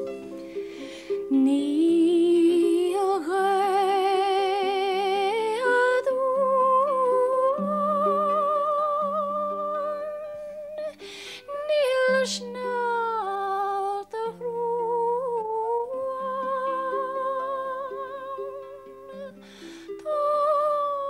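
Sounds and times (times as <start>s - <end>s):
harp plucked: 0.0s - 21.0s
singer breathing: 0.2s - 1.3s, 10.4s - 11.5s, 19.3s - 20.0s
woman singing: 1.1s - 21.0s.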